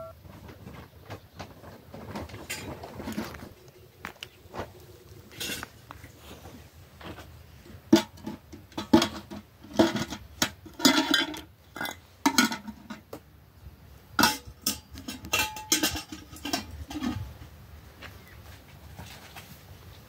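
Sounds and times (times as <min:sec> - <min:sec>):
dishes and pots clattering: 0:01.9 - 0:03.5, 0:05.3 - 0:05.7, 0:07.8 - 0:13.1, 0:14.2 - 0:17.3.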